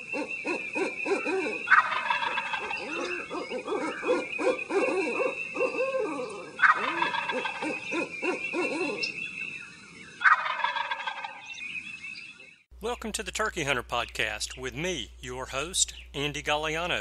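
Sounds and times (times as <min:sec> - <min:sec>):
turkey gobbling: 0:00.0 - 0:09.2, 0:10.2 - 0:11.6.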